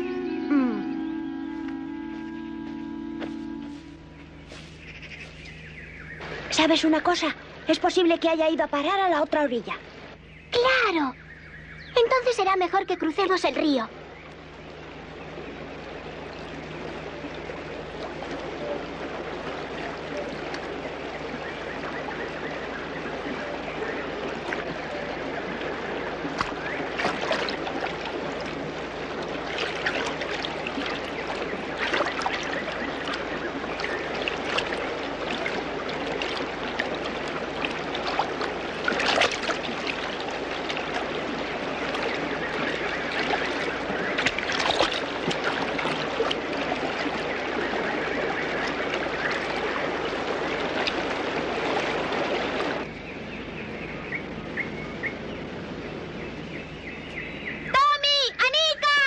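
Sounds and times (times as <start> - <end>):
splashes of wading: 0.0 - 59.0.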